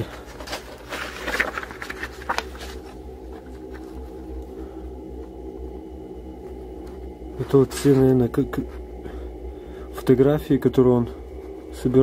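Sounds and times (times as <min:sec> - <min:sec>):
soft rustling: 0:00.0 - 0:04.2
steady low hum: 0:00.0 - 0:12.0.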